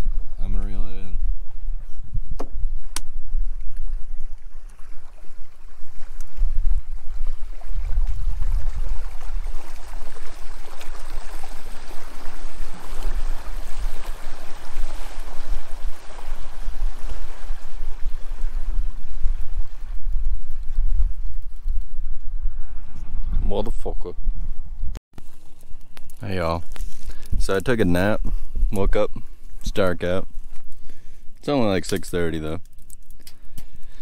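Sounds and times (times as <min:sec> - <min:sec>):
wind buffeting microphone: 0:00.0 - 0:25.0, 0:25.8 - 0:32.2
small waves lapping: 0:02.8 - 0:21.6.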